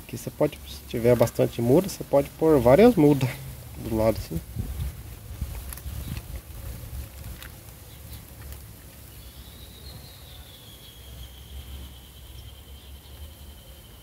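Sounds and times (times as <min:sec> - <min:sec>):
high insect call: 0:09.0 - 0:14.0.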